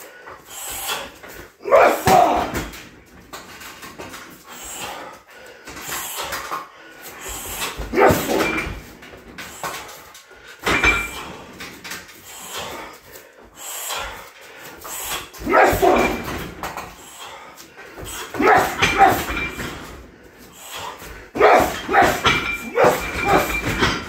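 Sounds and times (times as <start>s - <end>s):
person shouting or grunting: 1.6s - 2.8s, 7.8s - 8.7s, 15.4s - 16.4s, 18.3s - 19.6s, 21.4s - 23.6s.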